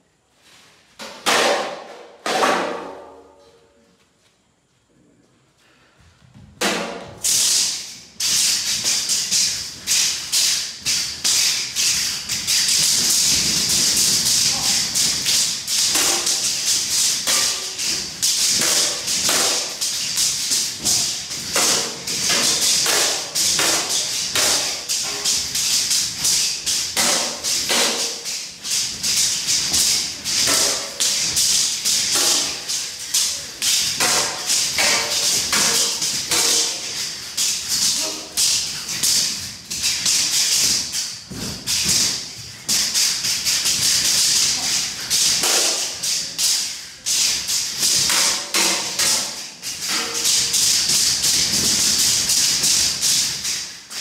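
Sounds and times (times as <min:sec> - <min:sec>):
sword clashing on shield: 0:12.6 - 0:37.1, 0:44.4 - 0:46.2, 0:47.8 - 0:52.7.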